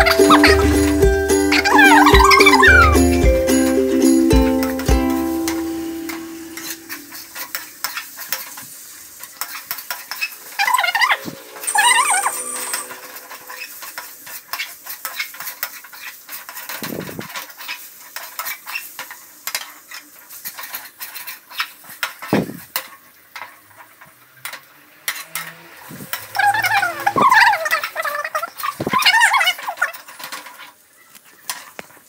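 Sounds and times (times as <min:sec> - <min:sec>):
wavering pitched sound: 0:00.0 - 0:07.2, 0:10.4 - 0:14.3, 0:24.6 - 0:28.3
oil sizzling: 0:00.0 - 0:28.4
metal spatula scraping a pan: 0:09.4 - 0:16.8.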